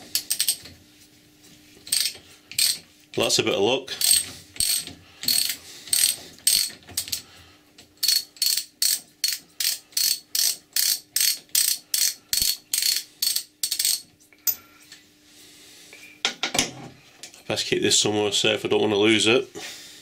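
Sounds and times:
socket ratchet clicking: 0.1 - 0.6, 1.9 - 2.8, 4.0 - 7.2, 8.0 - 14.0.

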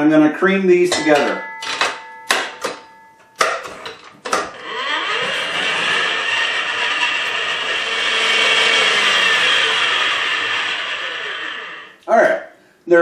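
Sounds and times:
stand mixer motor running: 4.5 - 12.0.

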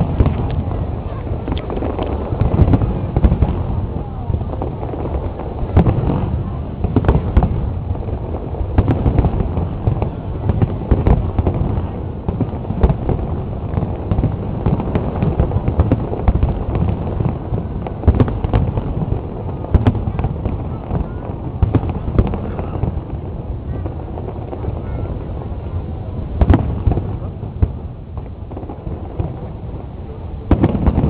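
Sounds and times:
continuous low rumble: 0.0 - 31.0
fireworks bangs: 0.0 - 31.0.

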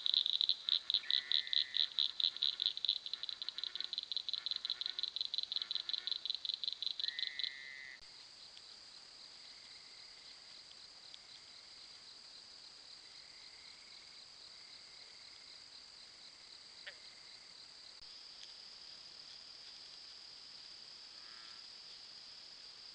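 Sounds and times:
cricket-like trill: 0.0 - 8.0
frogs calling: 0.0 - 8.1.

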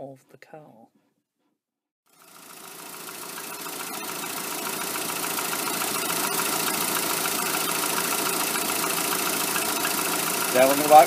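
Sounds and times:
car engine idling: 2.2 - 11.0.

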